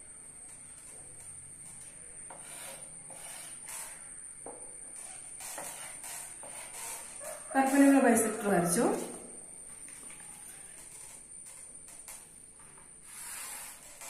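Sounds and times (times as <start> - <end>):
faint high whine: 0.0 - 14.0
pencil scratching drawing strokes: 2.3 - 3.9.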